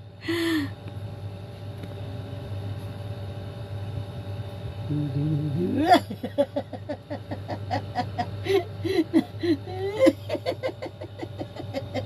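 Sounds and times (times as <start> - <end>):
steady low hum: 0.0 - 12.0
laughter in bursts: 6.0 - 12.0.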